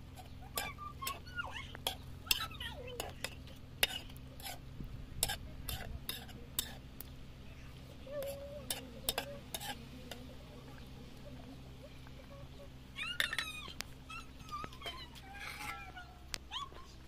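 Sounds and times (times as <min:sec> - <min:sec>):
metal spatula scraping pan: 0:00.1 - 0:06.8, 0:08.2 - 0:10.2.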